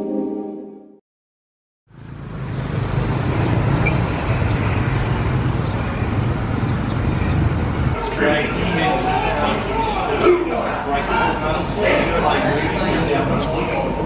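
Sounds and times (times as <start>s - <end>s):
sustained music chord: 0.0s - 1.0s
city street traffic hum: 1.9s - 14.0s.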